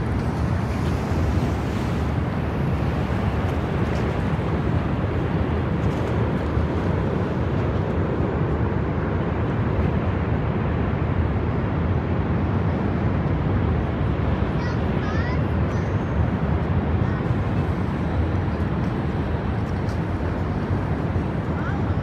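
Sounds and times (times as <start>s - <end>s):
low outdoor rumble: 0.0s - 22.0s.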